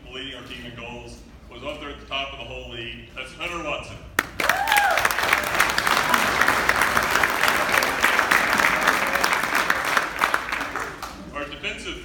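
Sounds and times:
audience applauding: 0:04.2 - 0:11.4
person whooping: 0:04.4 - 0:05.2.

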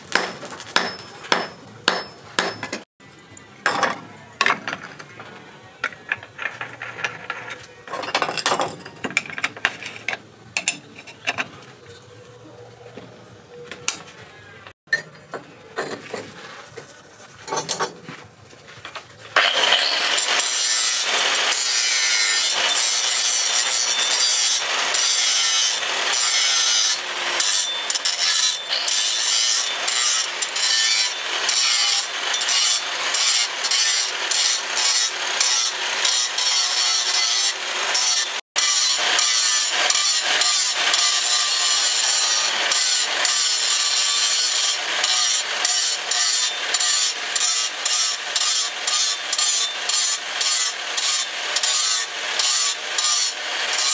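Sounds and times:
angle grinder grinding steel: 0:19.2 - 0:53.9.

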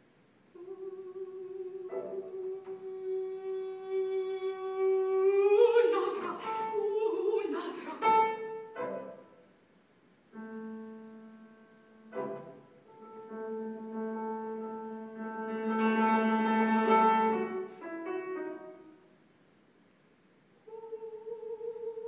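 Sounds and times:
person singing: 0:00.6 - 0:08.2, 0:20.6 - 0:22.0
grand piano: 0:00.6 - 0:19.3.

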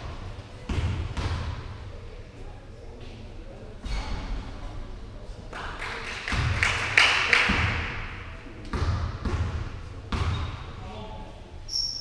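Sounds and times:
basketball bouncing on court: 0:00.6 - 0:01.7, 0:08.7 - 0:10.6.

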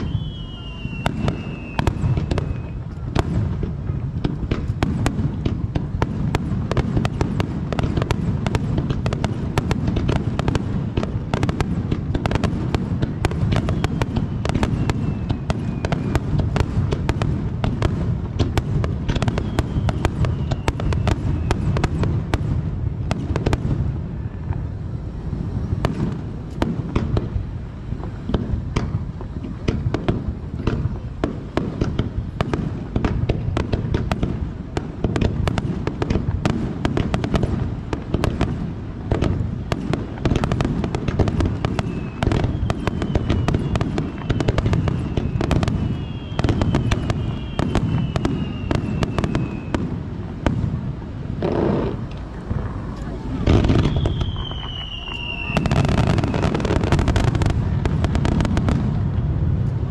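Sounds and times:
falling whistling tones: 0:00.0 - 0:02.9, 0:13.6 - 0:16.2, 0:19.2 - 0:21.8, 0:41.6 - 0:49.8, 0:53.6 - 0:56.6
fireworks crackling and banging: 0:00.0 - 0:59.9.

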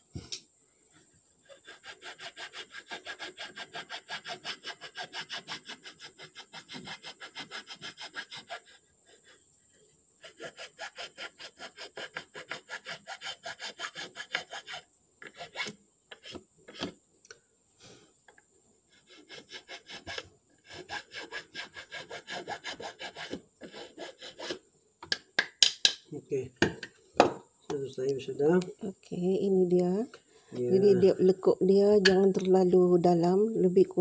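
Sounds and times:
metal file rasping on wood: 0:01.4 - 0:09.4, 0:10.2 - 0:16.9, 0:18.9 - 0:24.6.

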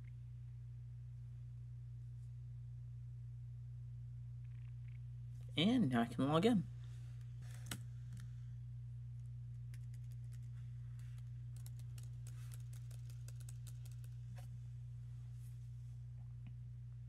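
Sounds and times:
steady low hum: 0:00.0 - 0:17.0
laptop keyboard typing: 0:09.7 - 0:14.2.

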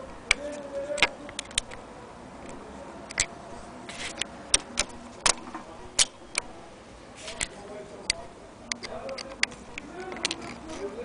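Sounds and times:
brief rustle: 0:03.9 - 0:05.7.

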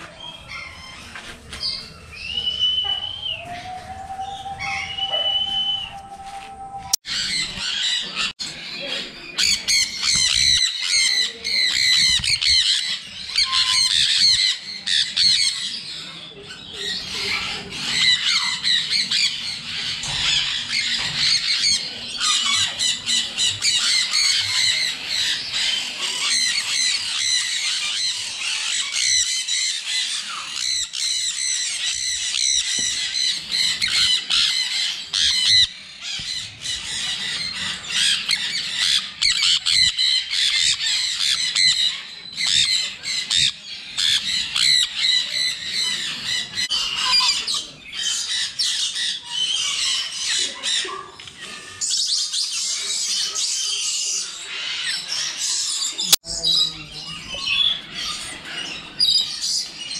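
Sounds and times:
parrots squawking and screeching: 0:00.0 - 0:06.0, 0:07.0 - 0:59.9.

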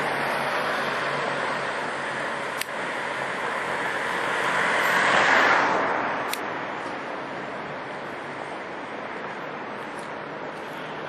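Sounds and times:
street traffic: 0:00.0 - 0:11.0
wind: 0:00.0 - 0:11.0
sharp click: 0:02.6 - 0:02.8, 0:06.3 - 0:06.5.

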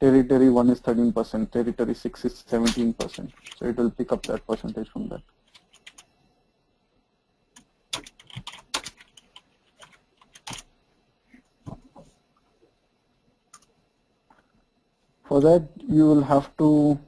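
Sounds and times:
keyboard and mouse clicks: 0:02.6 - 0:04.8, 0:05.4 - 0:06.1, 0:07.5 - 0:10.7, 0:13.5 - 0:14.5.

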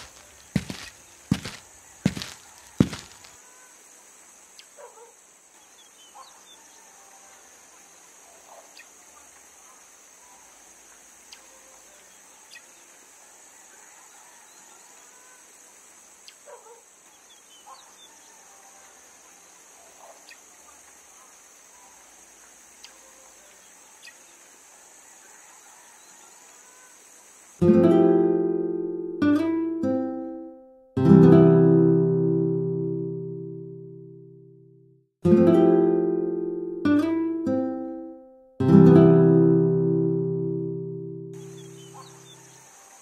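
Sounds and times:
steady high hiss: 0:00.0 - 0:29.4, 0:41.4 - 0:43.0.

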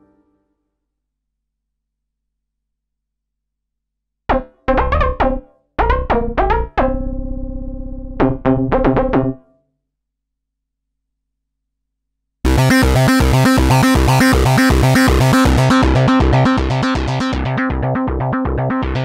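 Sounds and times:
synthesizer notes and chord: 0:12.5 - 0:19.0.

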